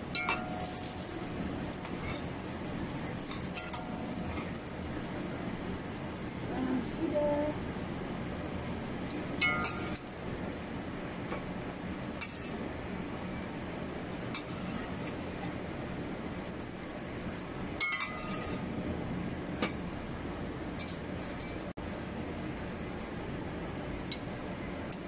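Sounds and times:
steady background noise: 0.0s - 25.0s
metal spatula clinking on wok: 0.2s - 1.0s, 9.4s - 10.1s, 17.8s - 18.4s.

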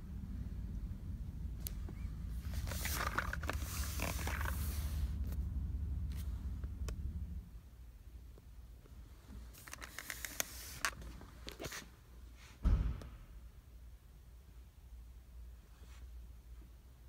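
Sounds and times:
rustling and scraping clicks: 1.6s - 5.4s, 9.3s - 11.9s.

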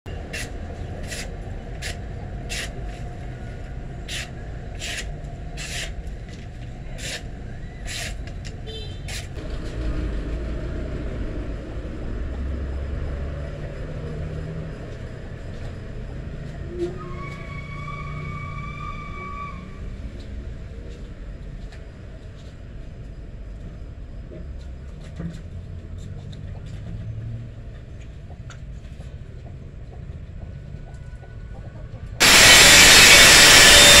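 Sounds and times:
traffic rumble: 0.1s - 32.7s
sharp scratching strokes: 0.2s - 2.8s
car horn: 8.6s - 9.1s.

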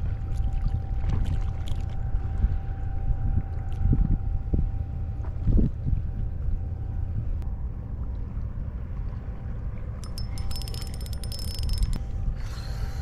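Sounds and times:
wind rumbling on microphone: 0.0s - 13.0s
spinning reel clicking and whining: 10.0s - 12.0s.

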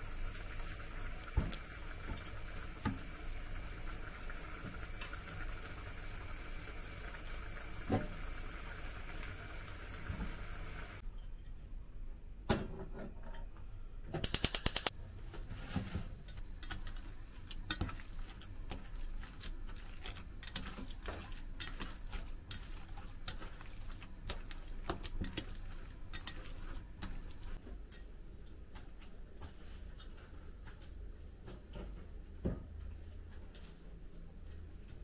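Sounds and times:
hand squishing raw minced meat: 16.9s - 27.6s.

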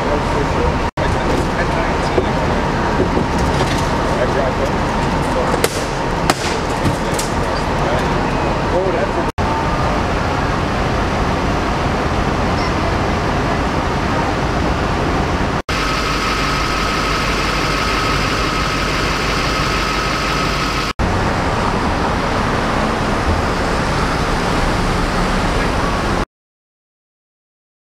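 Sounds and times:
idling engines and traffic rumble: 0.0s - 26.2s
high-pitched hum: 15.7s - 22.6s.

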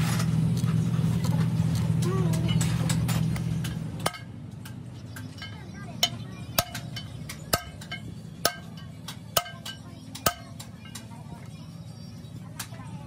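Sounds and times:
hammer striking metal: 2.3s - 11.2s.

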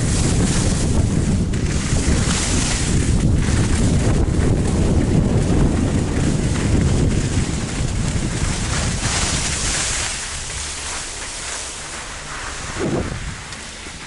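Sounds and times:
skis hissing over snow: 0.0s - 14.0s
wind buffeting microphone: 0.0s - 14.0s.

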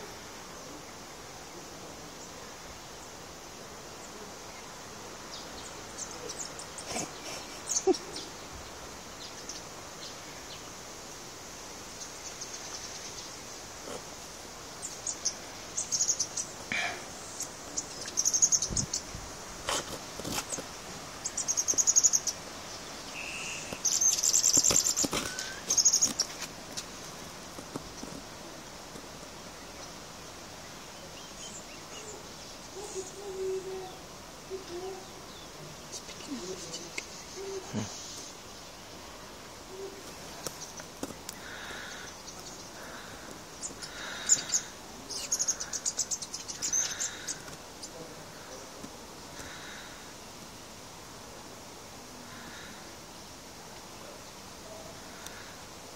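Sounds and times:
small birds chirping: 3.9s - 55.9s
bird calling: 23.0s - 26.5s, 31.8s - 38.3s, 39.7s - 48.0s
bird whistles: 23.2s - 24.4s.

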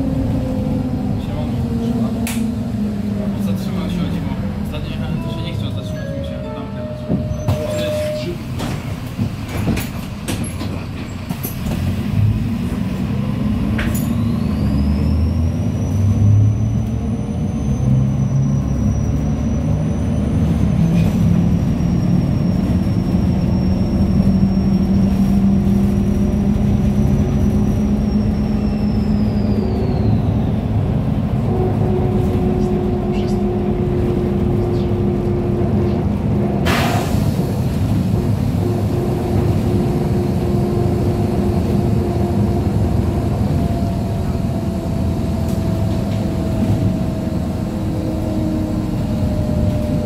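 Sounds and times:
bus drive noise: 0.0s - 50.0s.

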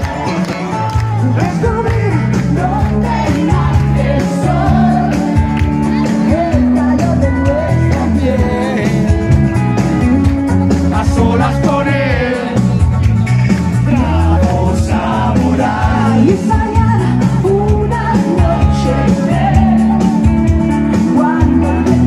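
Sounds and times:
live band playing: 0.0s - 22.0s
woman singing into a microphone: 2.6s - 8.8s, 15.9s - 20.3s, 20.9s - 22.0s.

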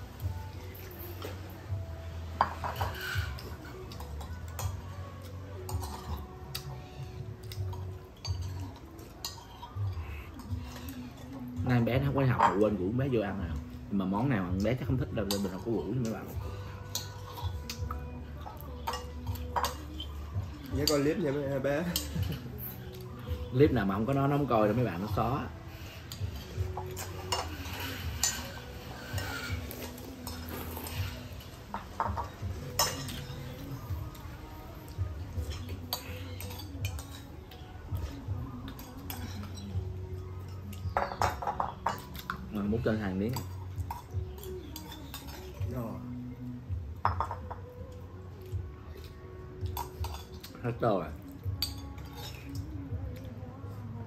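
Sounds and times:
spoons clinking on ceramic bowls: 5.6s - 6.3s, 16.8s - 21.1s, 26.1s - 33.8s, 35.5s - 37.7s, 40.4s - 42.7s, 43.3s - 45.6s, 49.7s - 50.6s, 51.6s - 52.7s.

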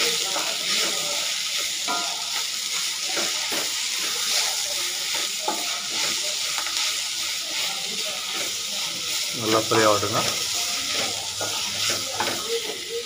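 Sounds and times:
food sizzling in oil: 0.0s - 13.0s
spatula scraping pan: 0.3s - 13.0s.

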